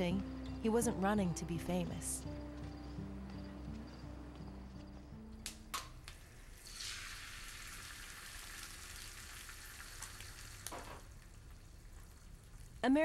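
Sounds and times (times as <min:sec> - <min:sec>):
egg sizzling in a skillet: 0:06.2 - 0:13.0.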